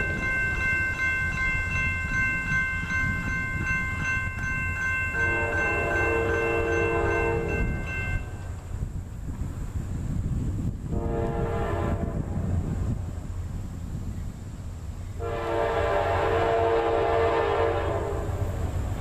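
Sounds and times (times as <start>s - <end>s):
crossing warning bell ringing: 0.0s - 8.6s
locomotive horn: 5.1s - 7.9s, 10.9s - 12.6s, 15.2s - 18.7s.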